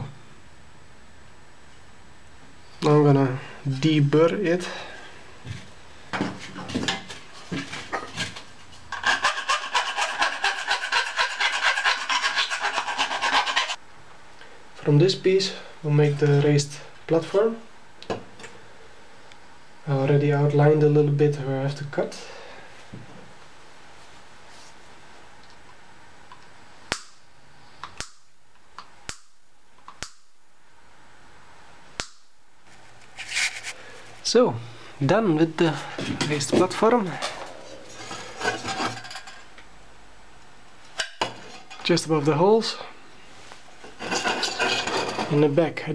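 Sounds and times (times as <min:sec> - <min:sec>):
metal edge being deburred: 0:08.9 - 0:13.8
rasping strokes on metal: 0:08.9 - 0:13.8.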